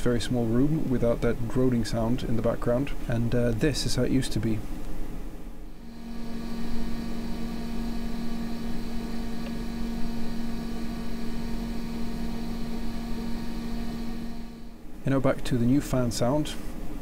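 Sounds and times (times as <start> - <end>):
computer fan droning hum: 0.0 - 17.0
airflow noise: 5.5 - 15.1.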